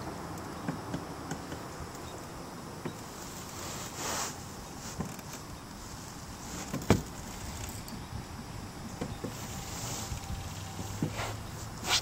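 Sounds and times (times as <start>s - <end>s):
steady outdoor hiss: 0.0s - 12.0s
fishing rod swish: 11.0s - 12.0s.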